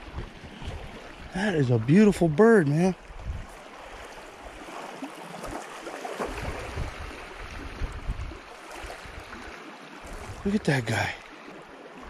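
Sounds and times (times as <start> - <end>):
wind buffeting microphone: 0.0 - 2.4, 3.0 - 4.6, 6.2 - 10.7
small waves lapping shore: 0.0 - 12.0.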